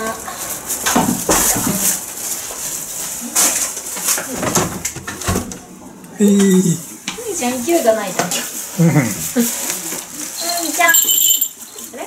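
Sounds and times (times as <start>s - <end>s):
rustling and knocking from handling: 0.4s - 5.6s.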